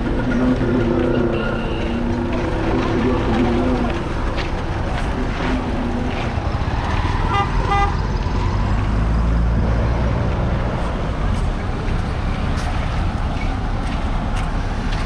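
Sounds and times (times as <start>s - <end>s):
traffic engine rumble: 0.0s - 15.0s
vehicle horn toots: 7.3s - 8.0s.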